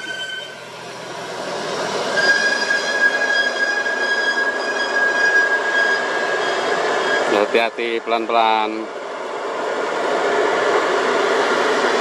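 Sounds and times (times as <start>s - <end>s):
high squeal: 0.0s - 0.6s, 2.1s - 7.6s.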